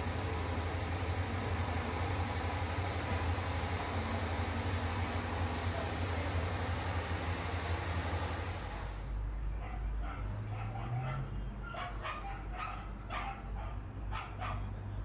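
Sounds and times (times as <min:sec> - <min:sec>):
steady hiss: 0:00.0 - 0:09.1
dogs barking: 0:09.6 - 0:14.8.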